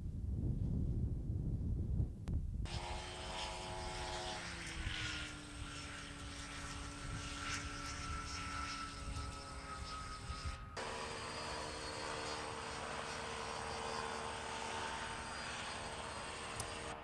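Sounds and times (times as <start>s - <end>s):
wind rumbling on microphone: 0.0s - 11.6s
propeller aircraft engine droning: 0.0s - 17.0s.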